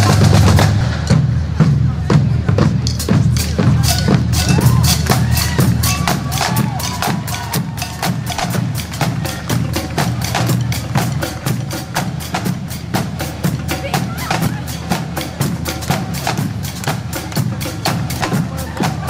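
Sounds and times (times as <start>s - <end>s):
parade drums fast cadence: 0.0s - 19.0s.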